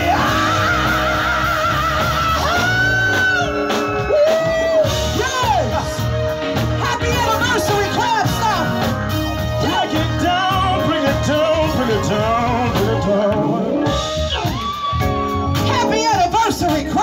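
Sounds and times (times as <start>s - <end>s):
person singing over music: 0.0s - 6.0s, 9.6s - 14.1s
drum kit: 0.0s - 17.0s
electric bass guitar: 0.0s - 17.0s
rock and roll band playing: 0.0s - 17.0s.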